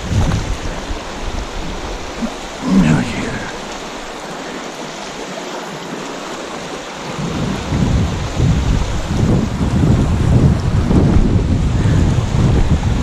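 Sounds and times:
wind rumble on microphone: 0.0s - 3.8s, 6.4s - 13.0s
river water rushing over stones: 0.0s - 13.0s.

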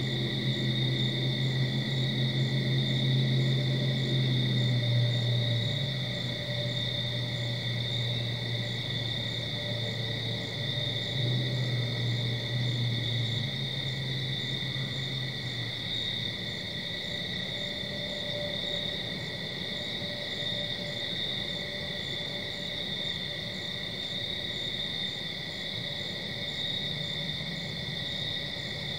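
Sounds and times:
low hum: 0.0s - 16.3s
crickets trilling: 0.0s - 28.9s
pulsing cricket chirp: 0.0s - 28.9s.

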